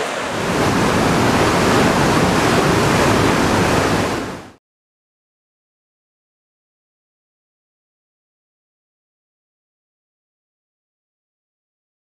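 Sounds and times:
flowing water rushing: 0.0 - 4.6.

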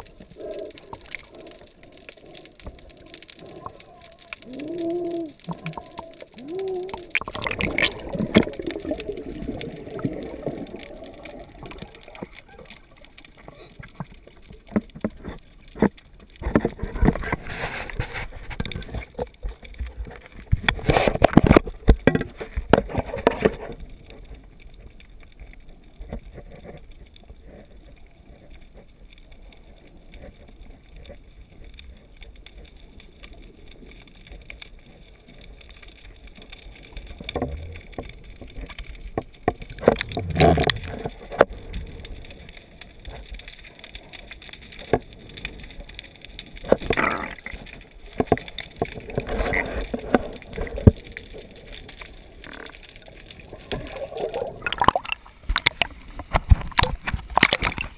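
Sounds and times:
steady underwater hiss: 0.0 - 19.2
rushing water underwater: 0.0 - 57.9.

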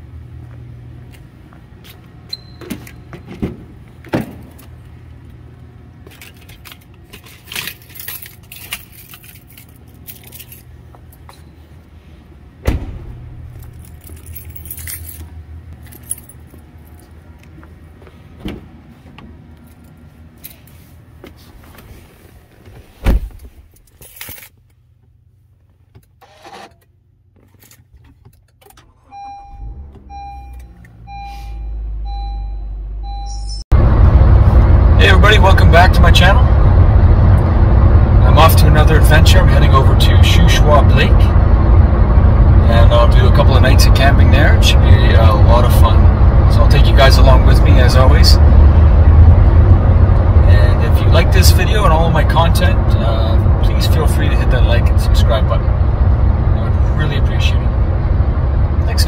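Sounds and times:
steady low hum: 0.0 - 59.0
car keys jangling: 6.1 - 11.2, 13.5 - 17.1, 23.7 - 24.6, 27.4 - 29.6
car door shutting: 12.6 - 13.3, 22.7 - 23.6.

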